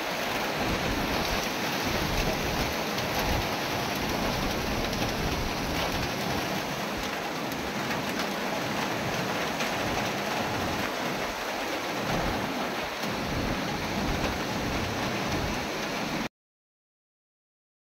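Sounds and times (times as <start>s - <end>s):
heavy rain pouring: 0.0s - 16.3s
wind buffeting microphone: 0.4s - 7.2s.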